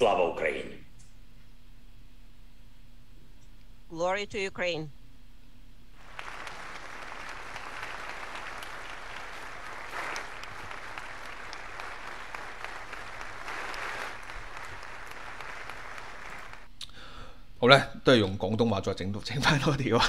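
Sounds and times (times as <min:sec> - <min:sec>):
large audience applauding: 0:06.0 - 0:16.7.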